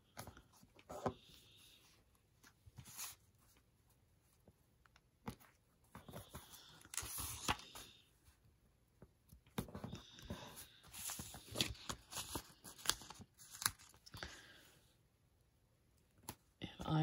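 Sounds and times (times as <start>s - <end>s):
paper page rustling: 5.3s - 7.9s, 9.6s - 14.1s.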